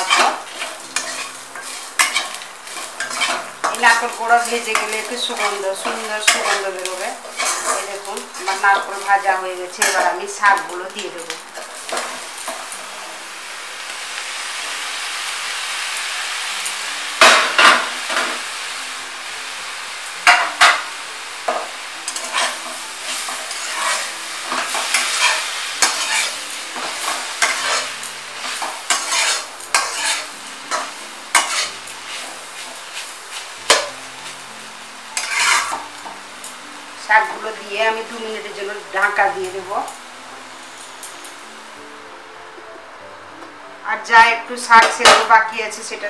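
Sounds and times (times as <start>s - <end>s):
metal spatula scraping pan: 0.0s - 10.6s, 22.1s - 33.9s, 35.2s - 35.9s
greens sizzling in hot oil: 0.0s - 42.2s, 43.8s - 46.0s.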